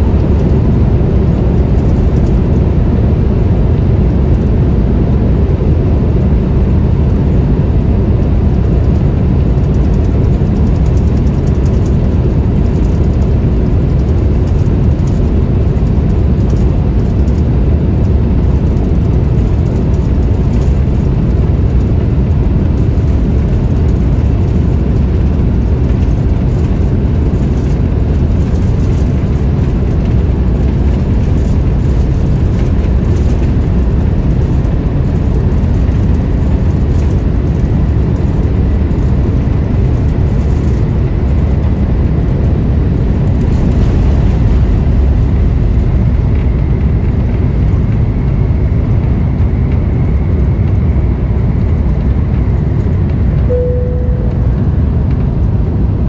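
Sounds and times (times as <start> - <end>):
airliner cabin low rumble: 0.0 - 56.0
faint steady tone: 53.5 - 54.8.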